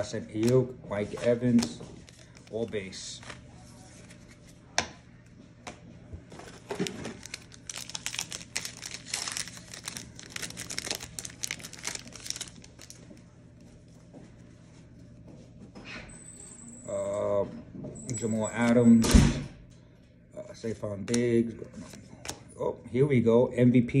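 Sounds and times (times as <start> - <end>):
plastic wrapper tearing and crinkling: 6.4 - 13.2.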